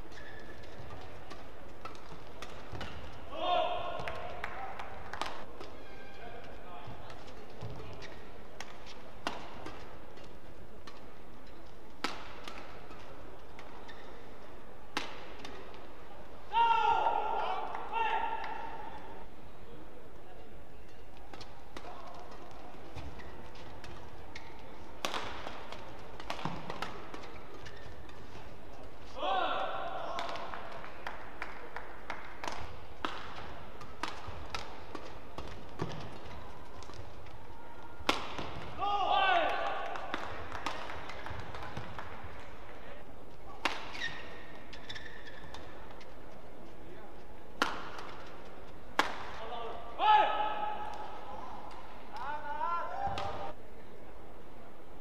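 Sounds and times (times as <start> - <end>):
rackets hitting shuttlecock: 0.0 - 14.2, 14.9 - 15.9, 20.8 - 28.9, 29.6 - 37.4, 38.0 - 42.6, 43.5 - 46.1, 47.5 - 49.8, 53.0 - 53.6.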